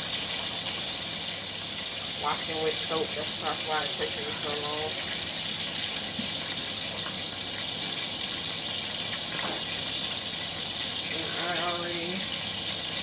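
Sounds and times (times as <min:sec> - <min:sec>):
tap running into sink: 0:09.2 - 0:09.7.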